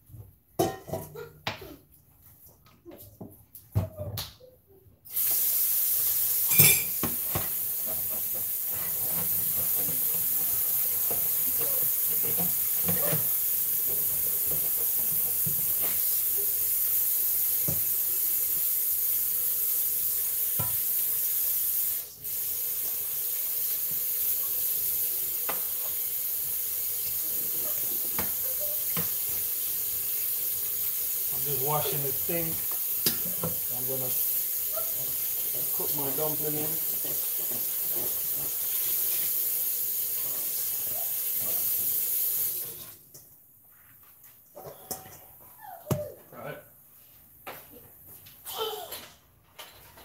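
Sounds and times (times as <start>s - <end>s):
tap running water into sink: 5.2s - 43.0s.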